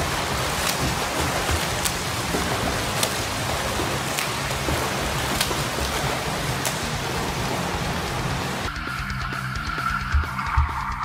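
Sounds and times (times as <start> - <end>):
sharp water splashes: 0.0 - 8.7
water churning: 0.0 - 10.5.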